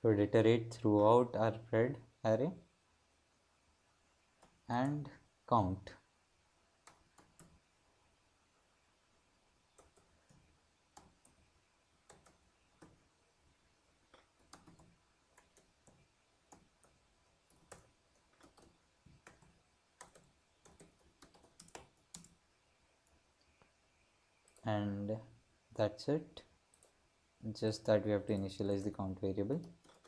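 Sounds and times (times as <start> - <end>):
typing on computer keyboard: 6.8 - 7.6, 12.1 - 13.0, 14.1 - 22.4, 29.5 - 30.0.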